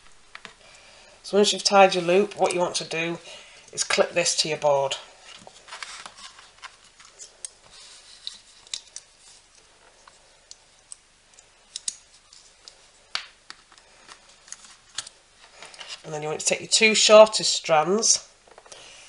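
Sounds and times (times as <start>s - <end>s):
metal binder clip clicking: 11.7s - 12.0s.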